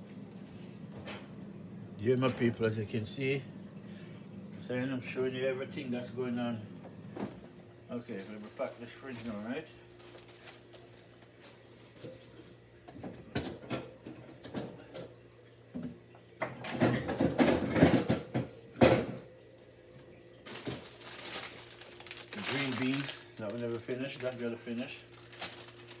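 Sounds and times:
faint steady hum: 0:00.0 - 0:26.0
clattering and rustling bags: 0:08.2 - 0:12.6, 0:20.4 - 0:26.0.

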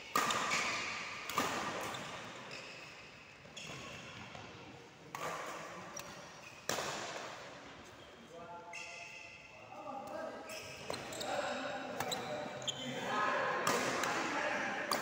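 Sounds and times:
racket hitting shuttlecock: 0:00.1 - 0:02.6, 0:05.1 - 0:07.4, 0:13.6 - 0:14.3
sneakers squeaking on court: 0:00.2 - 0:04.5, 0:10.5 - 0:13.0.

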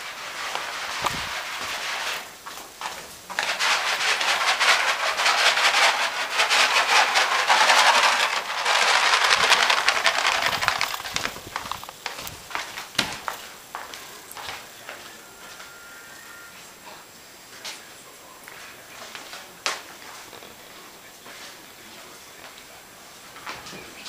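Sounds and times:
dry kibble rattling in box: 0:00.0 - 0:13.5.

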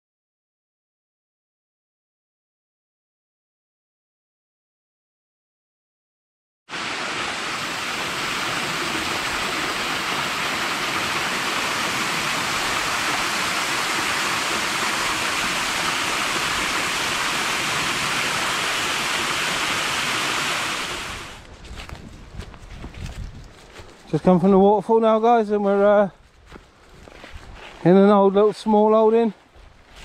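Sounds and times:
waterfall rushing and splashing: 0:06.7 - 0:21.4.

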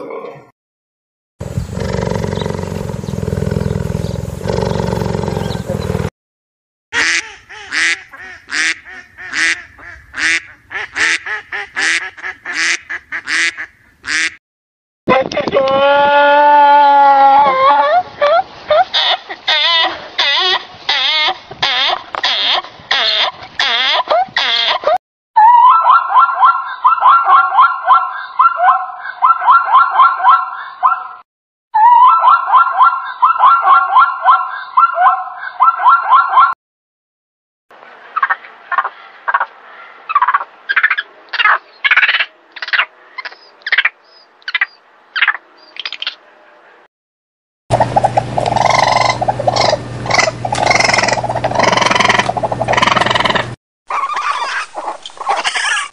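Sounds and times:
ducks quacking: 0:07.0 - 0:14.4, 0:47.7 - 0:55.9
zebra yelping barks: 0:24.0 - 0:31.2, 0:31.8 - 0:36.6, 0:47.8 - 0:55.9.

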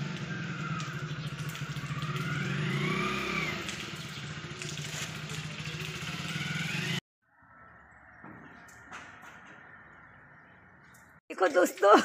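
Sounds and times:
vehicle engine running: 0:00.0 - 0:07.0.

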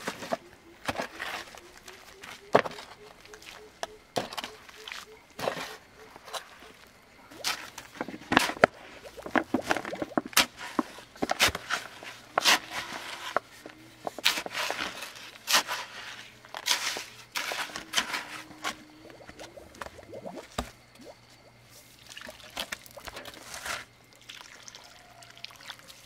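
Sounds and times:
knocks taps and scrapes of building work: 0:07.4 - 0:20.8.

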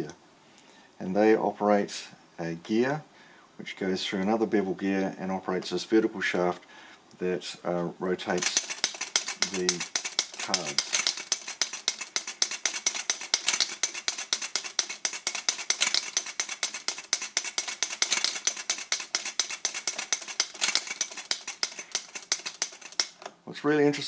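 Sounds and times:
flip clock cards snapping: 0:08.4 - 0:23.3.

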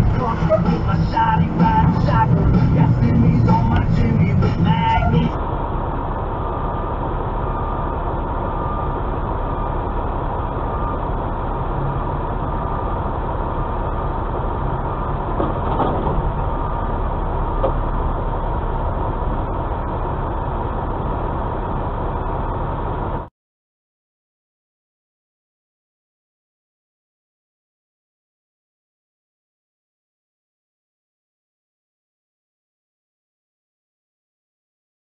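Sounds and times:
truck diesel engine rumble: 0:00.0 - 0:23.3.

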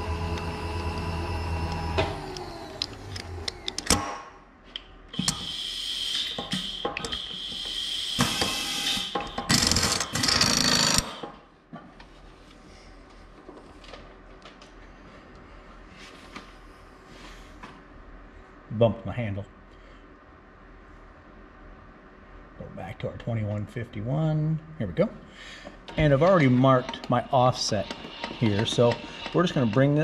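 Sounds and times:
machine motor running and winding down: 0:00.0 - 0:04.0, 0:05.2 - 0:11.3, 0:25.9 - 0:30.0
drill chuck rattling and scraping: 0:09.5 - 0:11.2, 0:27.6 - 0:30.0.

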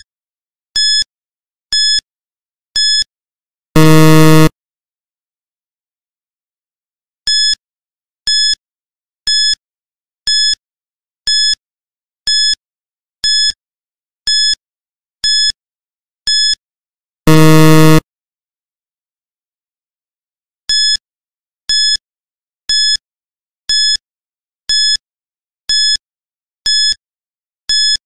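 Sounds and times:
loud harsh buzzer: 0:03.8 - 0:04.5, 0:17.3 - 0:18.0
short electronic beeps: 0:03.8 - 0:04.5, 0:17.3 - 0:18.0.

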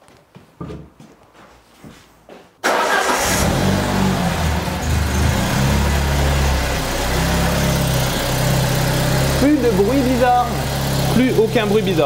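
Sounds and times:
car engine running: 0:03.1 - 0:12.0.

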